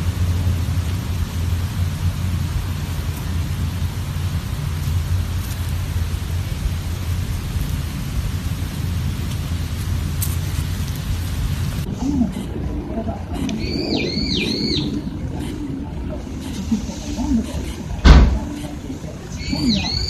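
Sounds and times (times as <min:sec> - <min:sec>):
wind buffeting microphone: 0:00.0 - 0:20.0.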